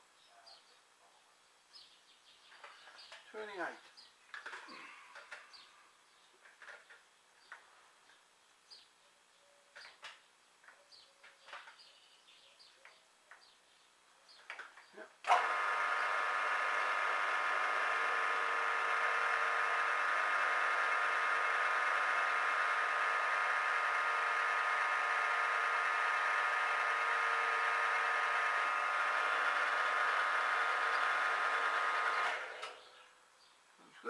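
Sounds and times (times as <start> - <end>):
mill-drill gear whine: 15.3 - 32.8.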